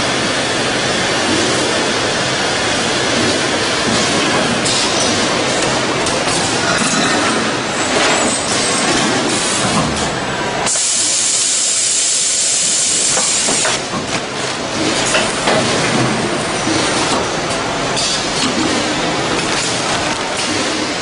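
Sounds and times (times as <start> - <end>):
packing machine rattling and knocking: 3.1 - 10.1, 13.2 - 21.0
pneumatic air hiss: 10.6 - 13.8.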